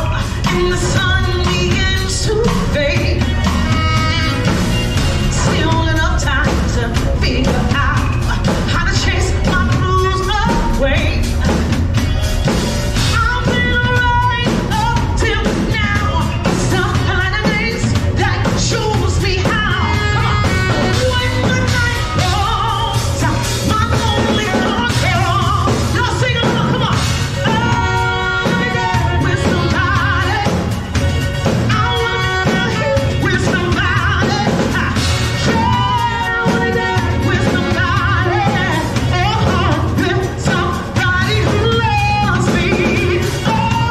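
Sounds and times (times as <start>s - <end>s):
low bass line: 0.0s - 26.4s
drum kit: 0.0s - 43.9s
woman singing into microphone: 0.0s - 43.9s.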